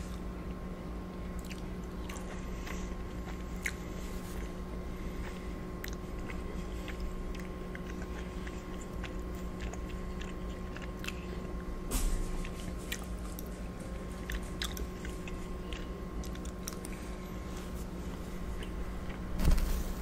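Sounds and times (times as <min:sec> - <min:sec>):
electrical hum: 0:00.0 - 0:20.0
wet chewing mouth clicks: 0:01.4 - 0:03.9, 0:05.2 - 0:11.7, 0:14.2 - 0:17.0.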